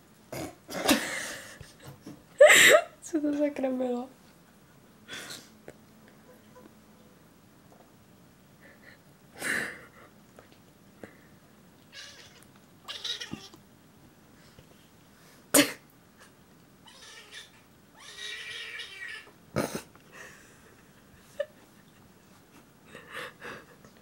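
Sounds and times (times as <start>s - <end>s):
cat squealing: 11.9s - 13.6s, 16.8s - 19.3s.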